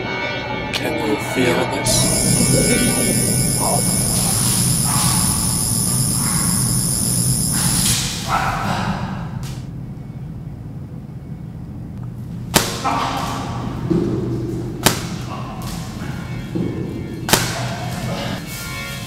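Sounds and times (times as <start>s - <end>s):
music: 0.0s - 3.9s, 15.6s - 19.0s.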